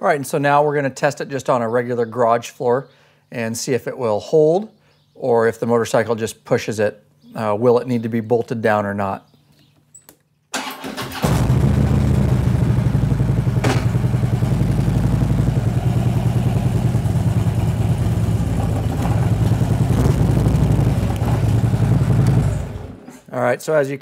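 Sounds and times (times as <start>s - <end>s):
motorcycle engine at low revs: 11.2s - 23.0s.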